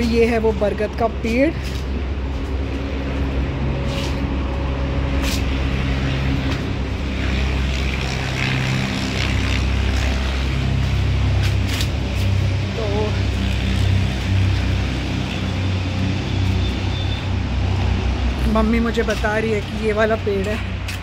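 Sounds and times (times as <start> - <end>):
vehicle engine droning: 0.0 - 21.0.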